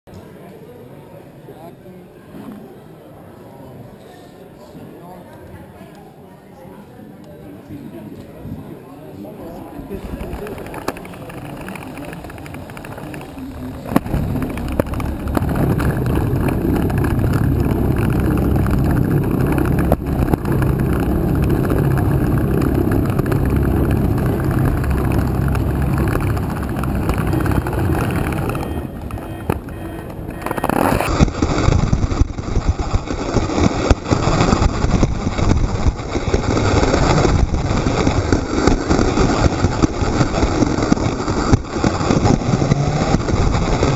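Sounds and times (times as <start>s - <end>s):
roller coaster car rumbling: 9.8s - 43.9s
car rattling along track: 10.2s - 43.9s.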